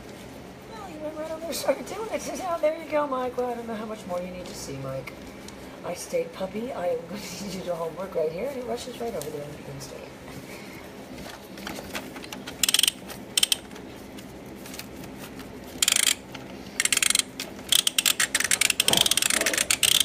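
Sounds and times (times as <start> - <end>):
plastic toy ratchet clicking: 12.6 - 13.7, 15.8 - 16.2, 16.8 - 20.0.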